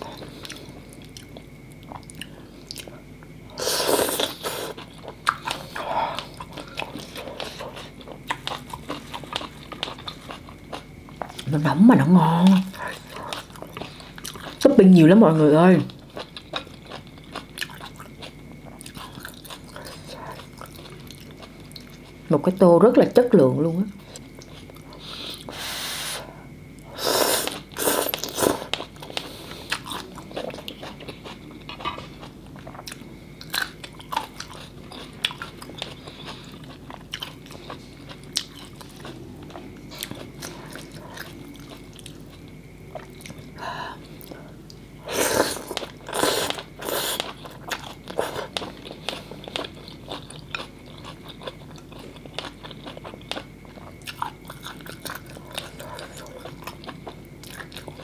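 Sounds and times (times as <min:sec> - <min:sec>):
chewing and crunching: 0:00.0 - 0:22.6, 0:23.9 - 0:25.6, 0:26.7 - 0:58.0.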